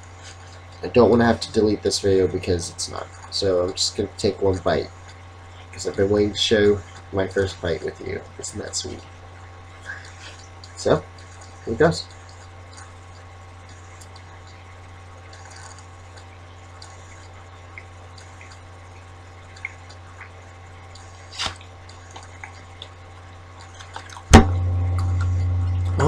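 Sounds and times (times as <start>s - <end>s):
low electrical hum: 0.0s - 26.0s
person chewing: 11.2s - 14.6s, 15.3s - 17.4s, 19.5s - 24.3s
loud knock: 24.3s - 25.1s.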